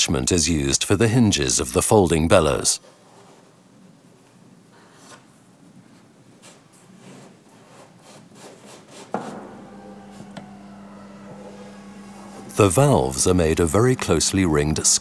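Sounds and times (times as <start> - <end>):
sharp knock: 9.2 - 12.5
steady low hum: 9.2 - 15.0.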